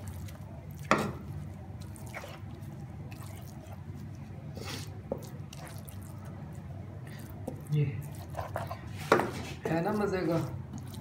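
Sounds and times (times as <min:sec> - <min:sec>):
steady low hum: 0:00.0 - 0:11.0
wooden spoon scraping a pan: 0:07.4 - 0:11.0.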